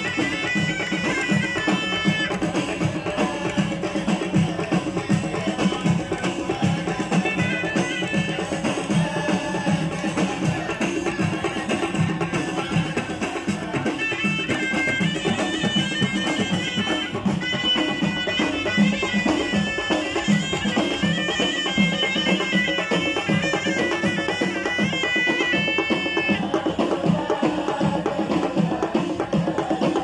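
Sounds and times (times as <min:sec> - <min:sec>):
shrill reed wind instrument melody: 0:00.0 - 0:02.6, 0:07.2 - 0:09.2, 0:14.0 - 0:26.5
frame drums beating: 0:00.0 - 0:30.0.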